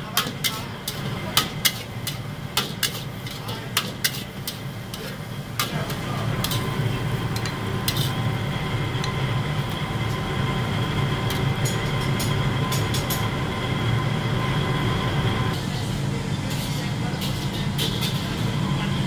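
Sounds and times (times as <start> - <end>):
gas burner roaring: 0.0 - 19.0.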